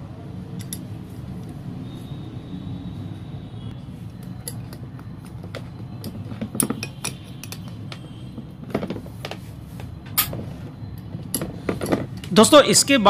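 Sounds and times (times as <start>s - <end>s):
metal parts clicking and clinking: 0.6s - 0.9s, 4.2s - 9.4s, 10.0s - 12.4s.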